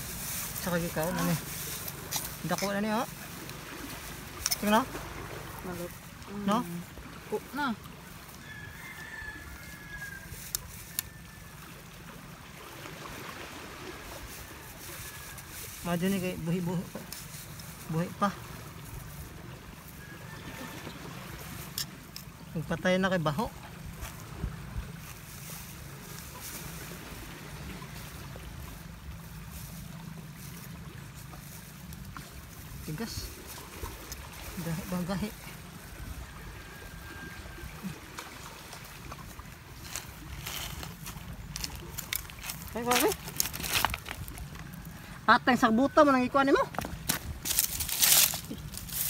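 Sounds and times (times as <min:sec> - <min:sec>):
flowing water: 0:00.0 - 0:49.0.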